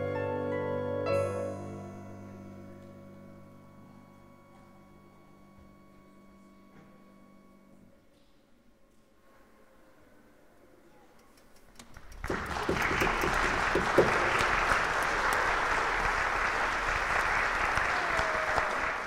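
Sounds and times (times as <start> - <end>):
audience applauding: 11.8 - 19.0.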